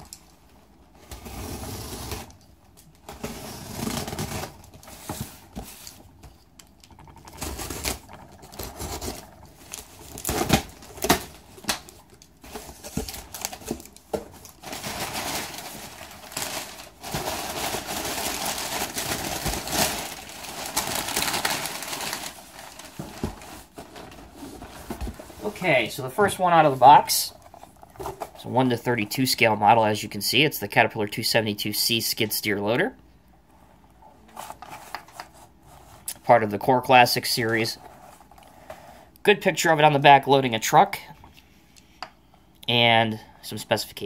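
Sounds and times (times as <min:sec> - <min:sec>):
cardboard rustling and scraping: 0:01.0 - 0:02.3, 0:03.1 - 0:06.0, 0:12.4 - 0:26.4.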